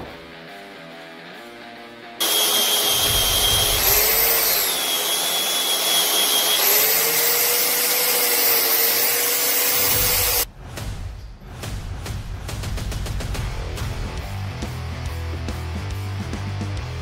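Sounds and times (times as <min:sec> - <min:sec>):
angle grinder grinding steel: 0:02.2 - 0:10.5.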